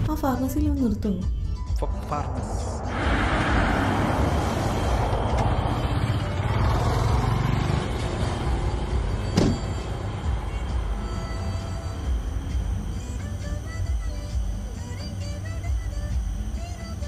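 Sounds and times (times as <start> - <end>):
road noise: 1.7 - 13.8
car engine idling: 2.7 - 17.0.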